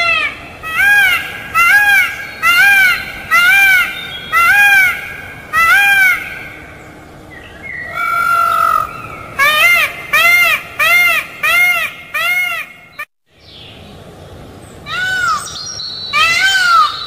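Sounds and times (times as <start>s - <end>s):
peacock calling: 0.0s - 13.1s, 14.8s - 17.0s.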